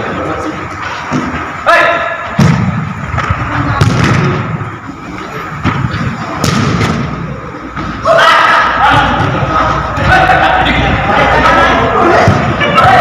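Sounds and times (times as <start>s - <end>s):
football kicked with sharp thuds: 2.4s - 2.9s, 6.4s - 7.1s
player shouting: 8.0s - 13.0s.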